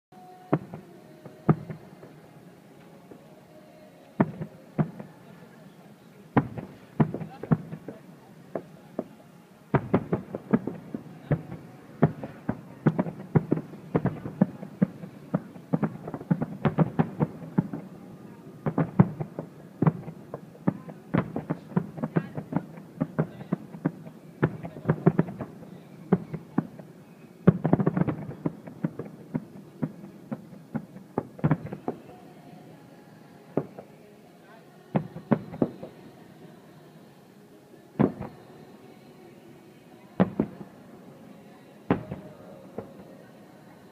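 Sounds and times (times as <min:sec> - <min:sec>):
firework shells bursting: 0:06.4 - 0:09.1.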